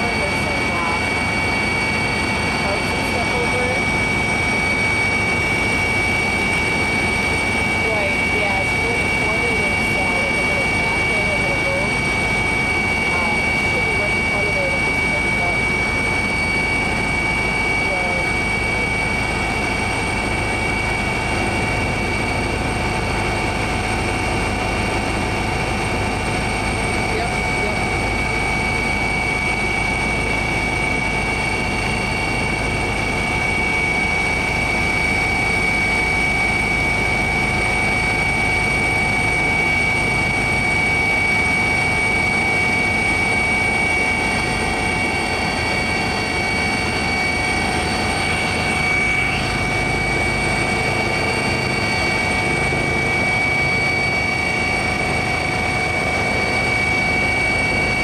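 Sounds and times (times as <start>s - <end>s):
aircraft engine drone: 0.0s - 58.0s.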